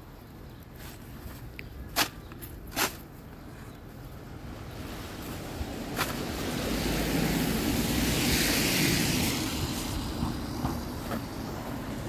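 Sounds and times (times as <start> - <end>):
vehicle passing: 4.5 - 12.0.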